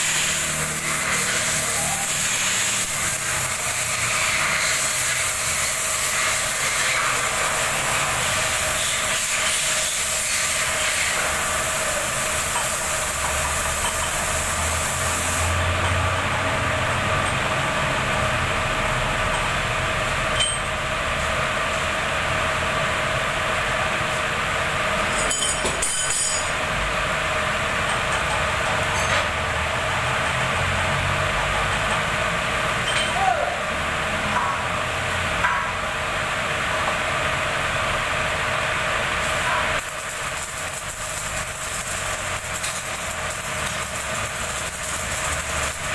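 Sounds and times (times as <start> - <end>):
bright hiss: 0.0 - 15.7, 39.0 - 45.9
machinery hum and hiss: 0.0 - 45.9
metallic clinks: 20.4 - 20.8.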